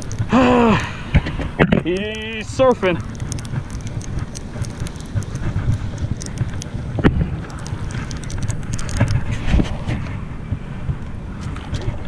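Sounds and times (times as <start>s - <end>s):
small clicks: 0.0s - 0.8s, 1.8s - 6.8s, 7.4s - 9.3s
wind buffeting microphone: 0.0s - 12.0s.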